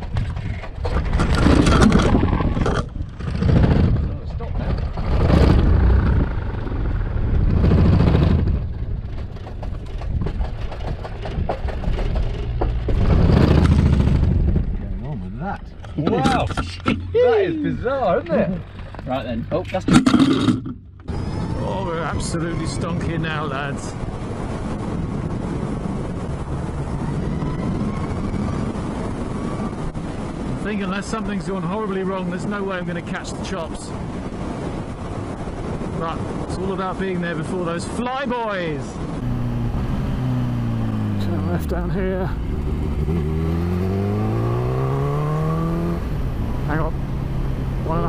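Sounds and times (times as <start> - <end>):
low motorcycle rumble: 0.0 - 15.4, 39.0 - 48.0
wind rushing over microphone: 0.0 - 48.0.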